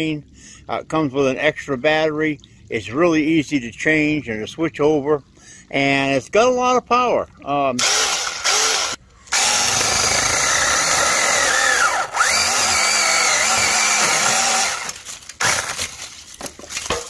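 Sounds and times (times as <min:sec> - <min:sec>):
mini chainsaw cutting wood: 0:07.8 - 0:15.9.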